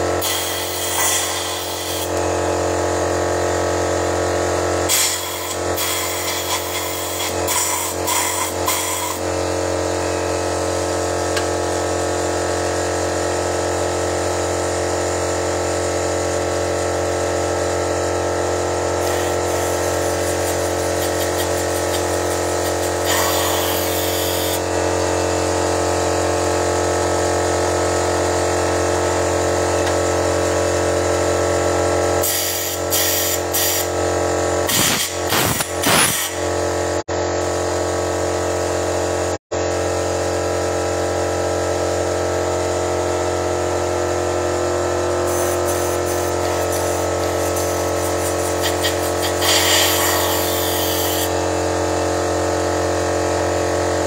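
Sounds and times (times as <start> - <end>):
motor droning: 18.2 - 27.2, 45.0 - 54.0
hissing bursts: 34.7 - 36.5, 45.3 - 51.3.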